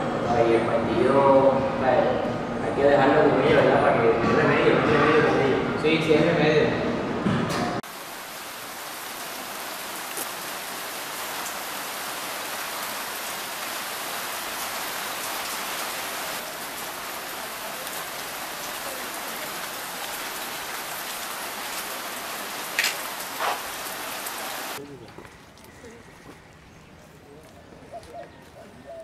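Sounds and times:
steady rain: 7.8 - 24.8.

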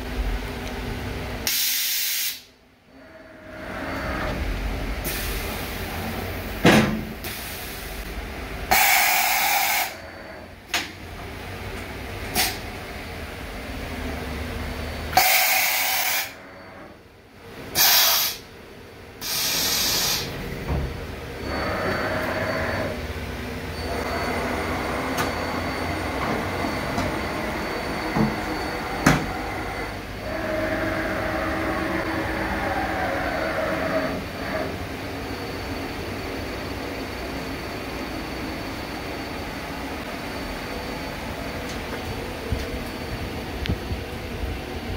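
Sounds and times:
compressed air hiss: 1.5 - 2.5, 8.7 - 10.0, 17.8 - 18.5, 19.2 - 20.4
machine whir with faint tones: 2.4 - 44.9.

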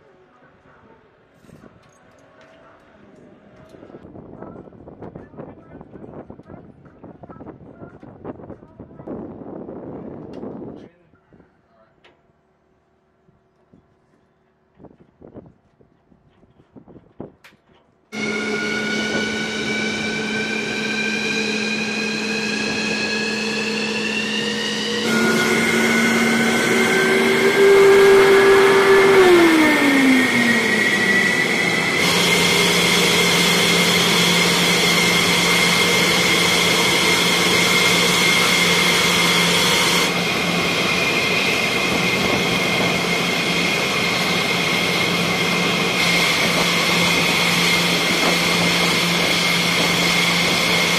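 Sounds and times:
jet engines rumbling and whining: 18.2 - 50.9.

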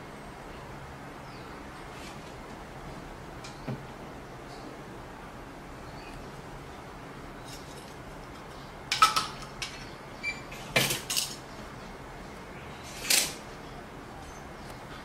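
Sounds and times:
metal parts clinking on table: 10.8 - 11.4.

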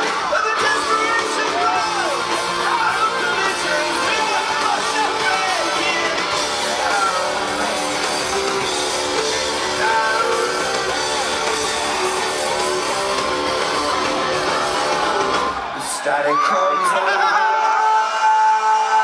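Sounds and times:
electric guitar: 0.0 - 16.4
live rock band: 0.0 - 19.0
person singing: 9.2 - 11.2.

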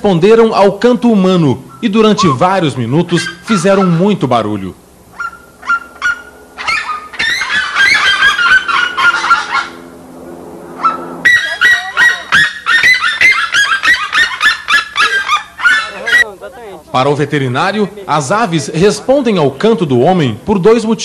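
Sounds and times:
birds yelping calls: 1.6 - 16.5.

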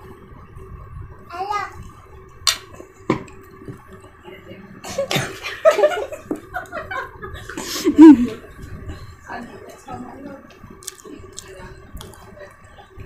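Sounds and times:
child's voice: 1.3 - 1.9.

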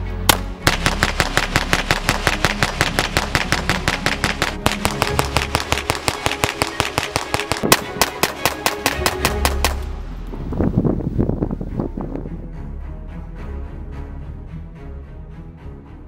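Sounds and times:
pistol shots cracking: 0.3 - 9.8.

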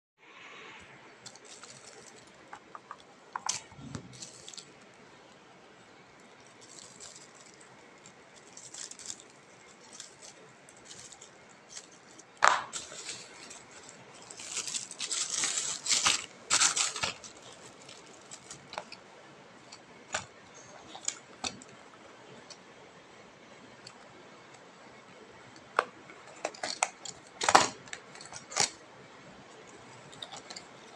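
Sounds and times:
plastic bag crinkling and tearing: 1.1 - 5.4, 6.2 - 19.0, 25.7 - 28.8.

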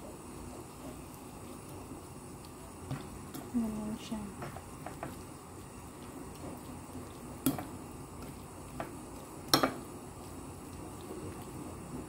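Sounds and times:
tongs knocking against dish: 9.5 - 9.8.

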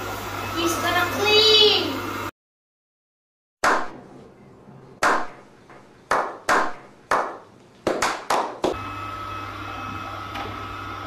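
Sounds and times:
hand clapping: 6.1 - 8.8.

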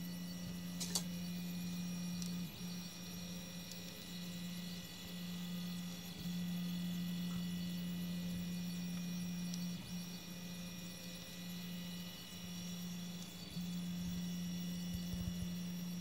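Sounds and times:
cooling fans whirring: 0.0 - 16.0
stepper motors humming: 0.0 - 16.0.

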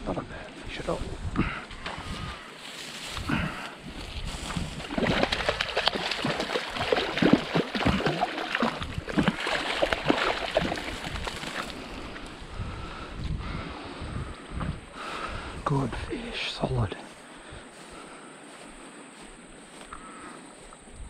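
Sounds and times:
fish splashing in water: 4.6 - 12.2.

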